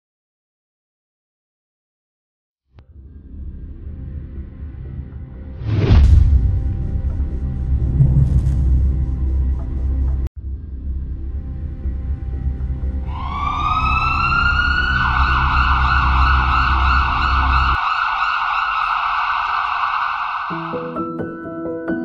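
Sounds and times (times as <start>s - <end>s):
dark music droning: 2.8s - 20.8s
emergency siren wailing: 13.0s - 21.0s.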